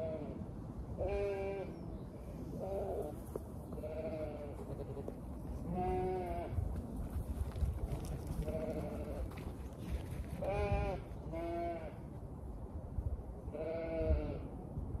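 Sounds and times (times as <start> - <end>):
sheep bleating: 3.8 - 5.1.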